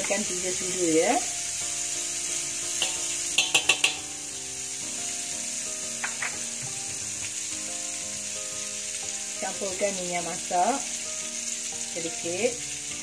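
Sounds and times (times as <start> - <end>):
margarine sizzling in a wok: 0.0 - 13.0
spoon tapping metal wok: 2.7 - 4.2, 5.9 - 6.5.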